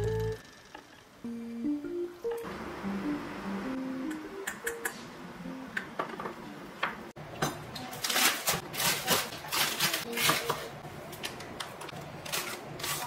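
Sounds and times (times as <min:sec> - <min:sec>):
soft music notes: 0:01.2 - 0:06.0
kitchen utensils clicking and knocking: 0:06.0 - 0:13.0.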